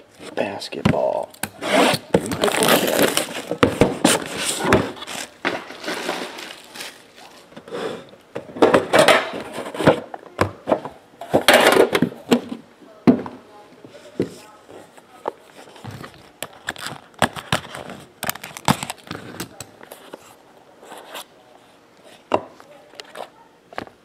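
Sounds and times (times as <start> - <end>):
box scraping and knocking: 1.6 - 6.7
plastic wrap crackling and tearing: 1.8 - 7.5, 16.0 - 20.0.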